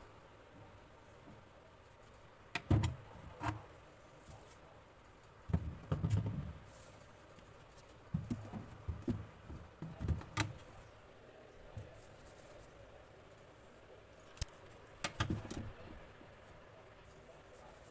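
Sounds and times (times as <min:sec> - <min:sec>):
fruit thumping on plastic shelf: 0:02.6 - 0:03.6, 0:05.5 - 0:06.7, 0:08.1 - 0:10.6, 0:15.0 - 0:15.8.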